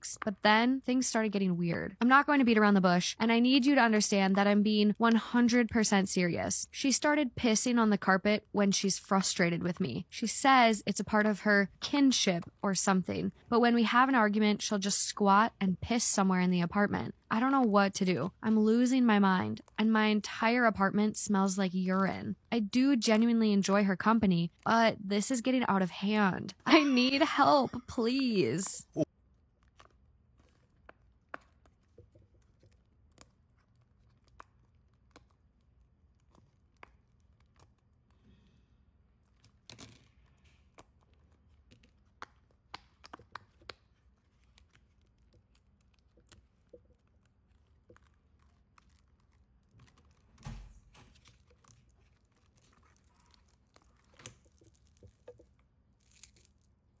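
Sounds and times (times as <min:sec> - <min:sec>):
crinkling handling sounds: 0:39.2 - 0:57.0.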